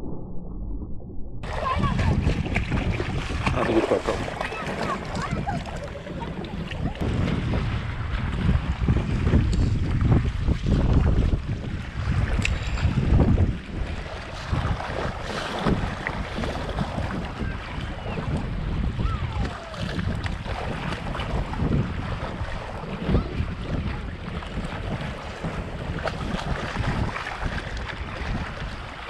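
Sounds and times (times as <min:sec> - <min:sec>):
waves lapping against rocks: 0:01.4 - 0:29.0
wind buffeting microphone: 0:01.4 - 0:29.0.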